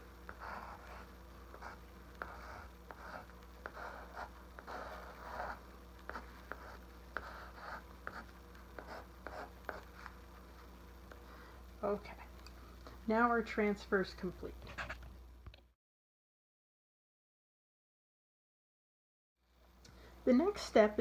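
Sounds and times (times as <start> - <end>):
pencil scratching on board: 0.3 - 10.7.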